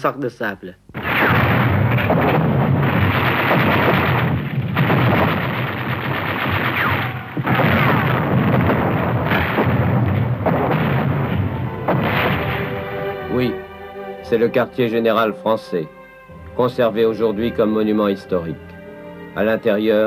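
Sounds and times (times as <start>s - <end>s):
rifle and machine-gun fire: 1.0s - 13.1s.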